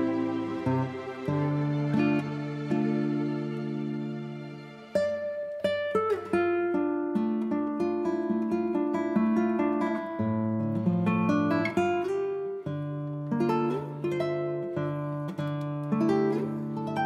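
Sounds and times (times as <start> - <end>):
acoustic guitar tune: 0.0 - 17.0.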